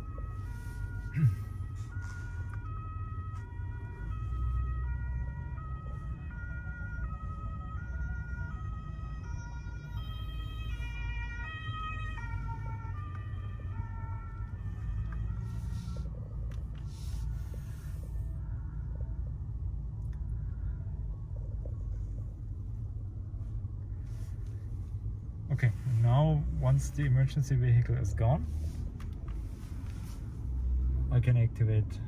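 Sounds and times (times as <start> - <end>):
two-tone siren: 0.0 - 18.4
road rumble: 0.0 - 32.0.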